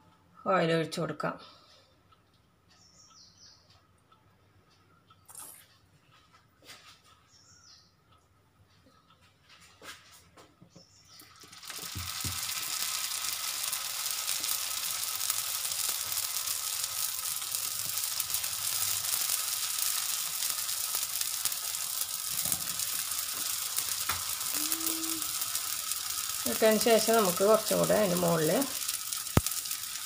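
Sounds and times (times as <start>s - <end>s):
dough sizzling on hot griddle: 11.1s - 30.0s.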